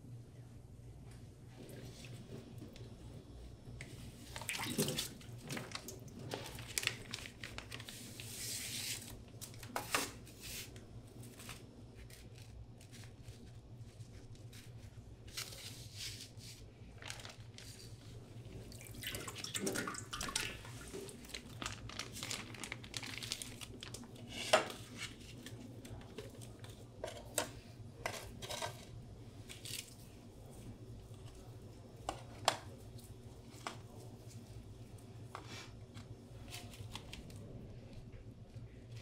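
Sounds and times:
steady low hum: 0.0 - 39.0
soft rustling: 20.6 - 26.8.

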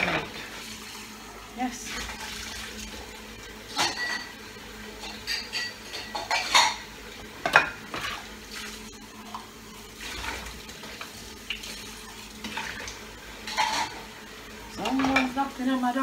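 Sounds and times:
dishes and utensils clinking: 3.7 - 4.4, 5.0 - 8.2, 13.4 - 14.0, 14.8 - 15.4.

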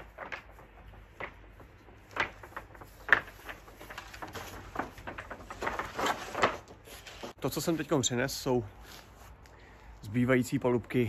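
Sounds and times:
wooden boards knocking together: 0.0 - 6.7.

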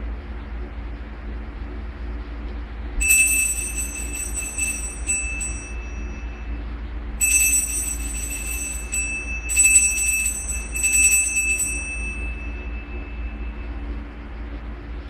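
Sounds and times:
altar bells jingling: 3.0 - 6.5, 7.2 - 13.6.

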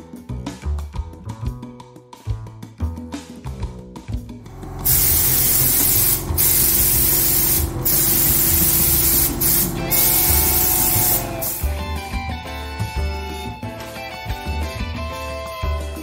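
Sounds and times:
air spray gun hissing: 4.5 - 11.7.

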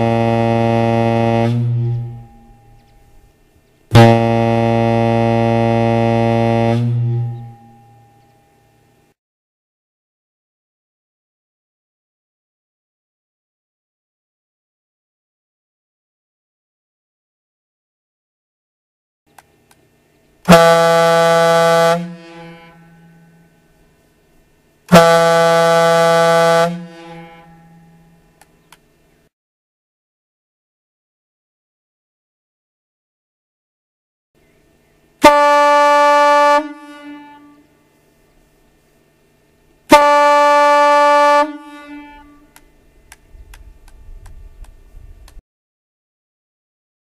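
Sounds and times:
ship's horn blast: 0.0 - 9.0, 20.4 - 23.8, 24.9 - 28.4, 35.2 - 38.1, 39.8 - 42.7
low rumble: 42.2 - 45.4.

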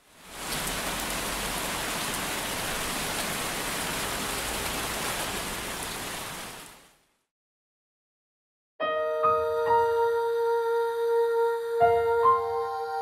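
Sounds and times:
steady rain hiss: 0.0 - 7.2.

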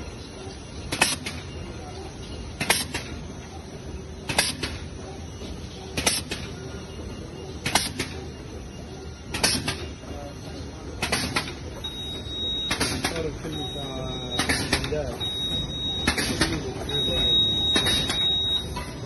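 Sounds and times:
machine mechanical hum: 0.0 - 19.0.

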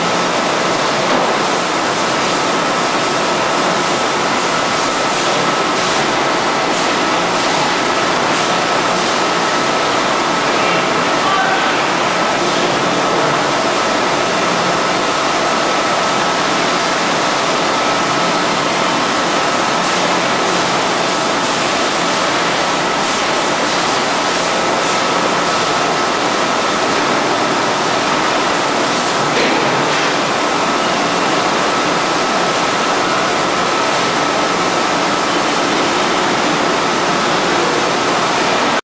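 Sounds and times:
bottling machine hissing: 0.0 - 38.8.

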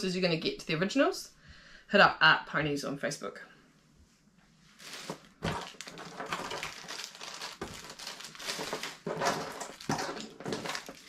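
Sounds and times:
plastic bag crinkling: 4.8 - 11.0.

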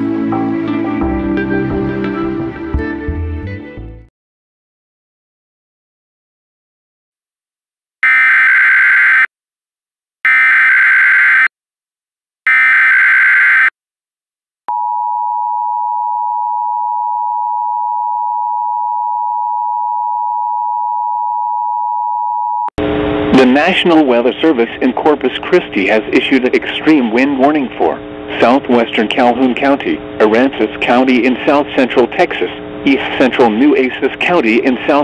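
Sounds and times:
person speaking: 23.3 - 35.0.

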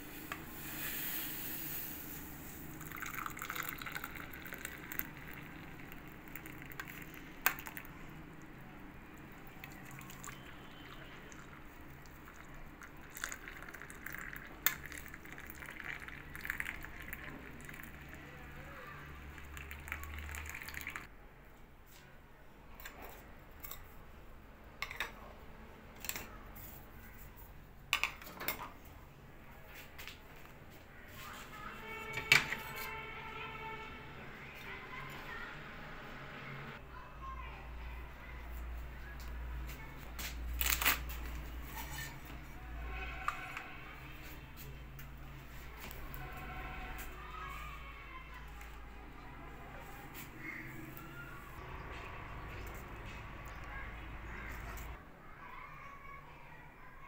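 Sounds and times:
tea pouring through strainer: 0.0 - 8.2, 9.2 - 18.3, 19.2 - 21.1
cups and spoons clinking: 2.8 - 7.9, 9.6 - 17.8, 24.8 - 25.2.

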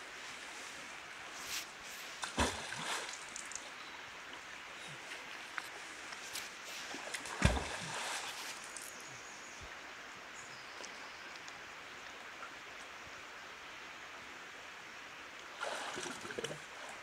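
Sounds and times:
running water hiss: 0.0 - 17.0
object splashing into stream: 2.2 - 3.6, 7.0 - 8.7.

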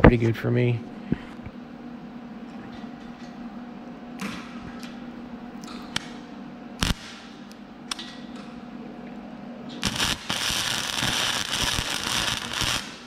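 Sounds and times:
welding arc crackling: 6.8 - 7.5, 9.8 - 13.0.

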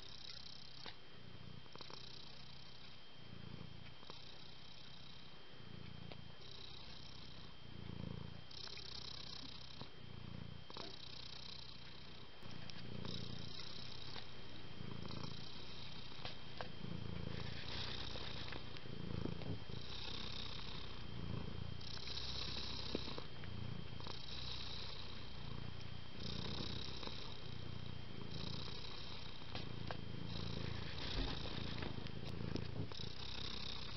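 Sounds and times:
cat purring: 0.0 - 33.9.

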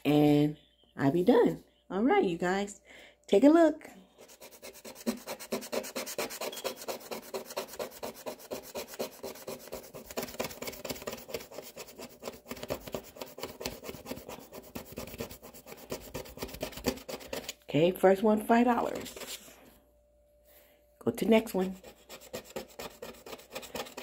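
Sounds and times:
coin scraping scratch card: 4.2 - 17.5, 21.8 - 24.0.

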